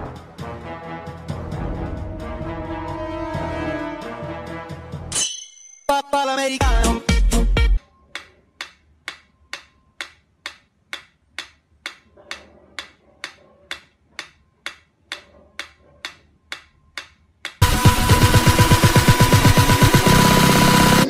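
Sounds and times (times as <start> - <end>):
metronome ticking: 8.2 - 12.0, 12.8 - 18.6.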